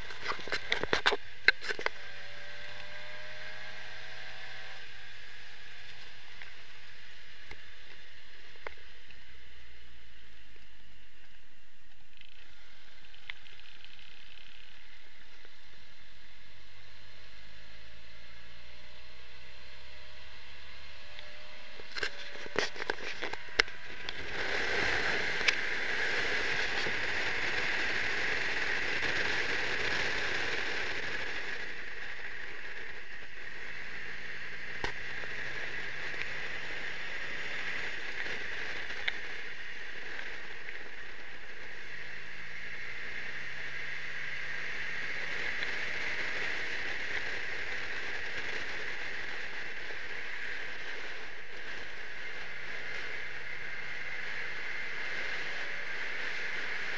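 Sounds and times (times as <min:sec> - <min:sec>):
car engine revving: 0:00.0 - 0:09.8, 0:12.4 - 0:56.9
wind and road noise rushing: 0:00.0 - 0:56.9.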